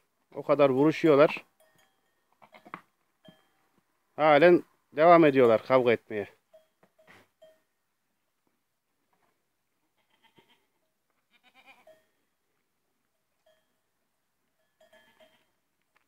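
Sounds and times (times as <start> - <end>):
goats bleating faintly: 9.9 - 12.0.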